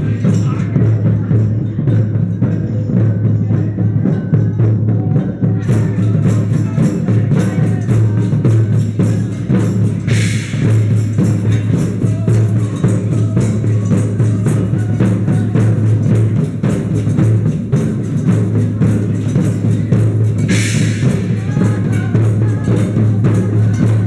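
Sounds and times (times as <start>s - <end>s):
hand drums and drum kit: 0.0s - 24.0s
cymbal crash: 5.6s - 24.0s.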